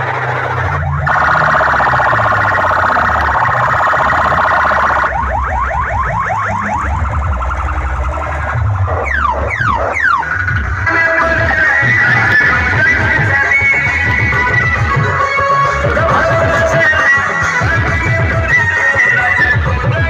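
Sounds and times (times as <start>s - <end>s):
rising siren-like electronic sweeps: 0.0s - 13.0s
steady deep bass: 0.0s - 20.0s.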